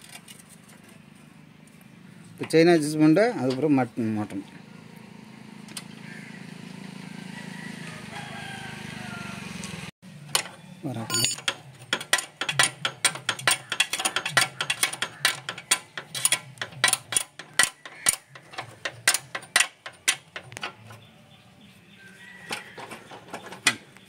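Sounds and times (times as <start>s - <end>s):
spanner clicking on axle nut: 10.3s - 21.0s.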